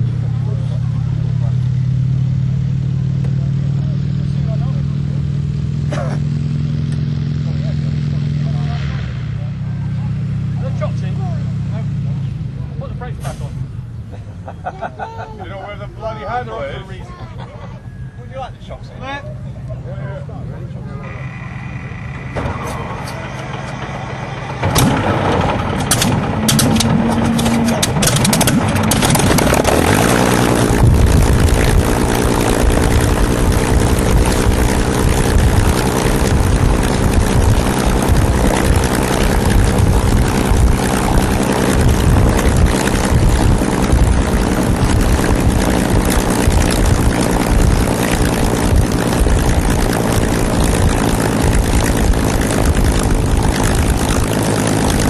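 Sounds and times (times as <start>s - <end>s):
aircraft engine running steadily: 0.0s - 14.9s, 19.2s - 55.0s
propeller engine starting with pops: 6.8s - 7.6s, 21.0s - 55.0s
brief whine: 20.8s - 25.1s.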